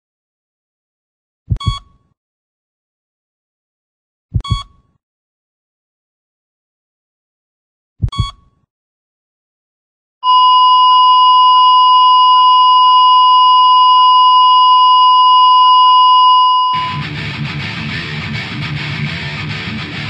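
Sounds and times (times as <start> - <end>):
double thump: 1.5 - 1.8, 4.4 - 4.7, 8.0 - 8.4
steady electronic beep tone: 1.5 - 1.9, 4.4 - 4.7, 8.0 - 8.4, 10.2 - 17.1
brief beep: 1.5 - 2.1, 4.4 - 4.9, 8.0 - 8.6, 10.2 - 17.1
heavy rock music: 16.8 - 20.0.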